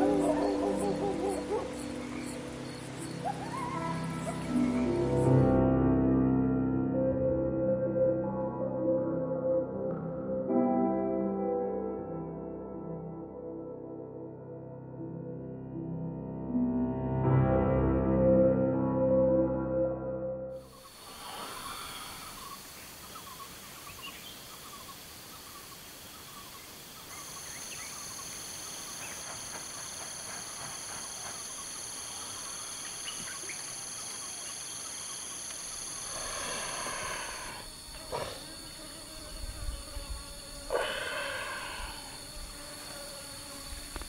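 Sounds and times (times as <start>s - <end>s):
faint hiss: 20.7s - 44.0s.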